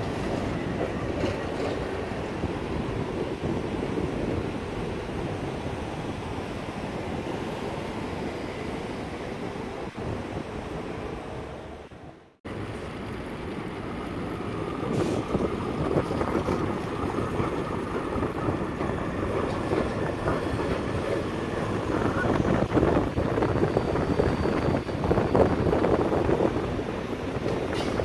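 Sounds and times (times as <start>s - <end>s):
tram wheels rumbling on rails: 0.0s - 28.0s
wheels clicking over rail joints: 27.4s - 28.0s.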